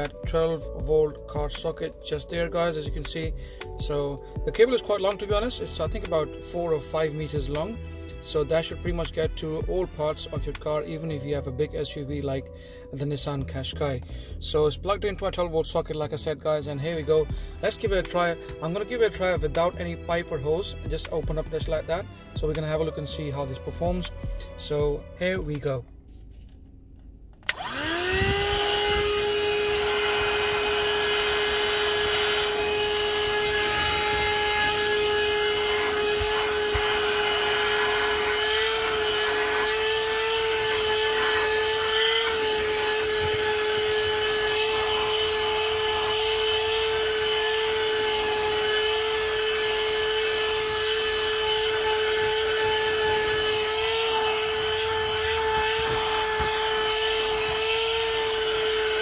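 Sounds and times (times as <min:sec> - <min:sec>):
vacuum cleaner motor whine: 0:27.4 - 0:59.0.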